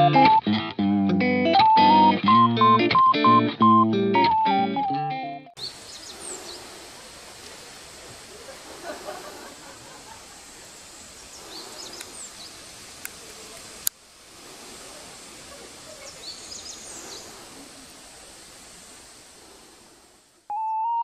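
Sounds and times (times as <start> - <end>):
birds chirping: 5.6 - 6.9, 7.8 - 13.8, 14.4 - 19.7
steady outdoor hiss: 5.6 - 21.0.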